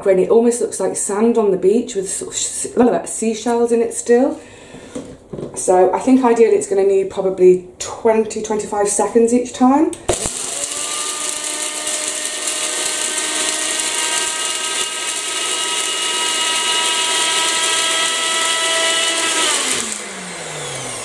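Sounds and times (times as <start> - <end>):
blender motor whine: 10.1 - 21.0
corn kernels grinding: 10.1 - 21.0.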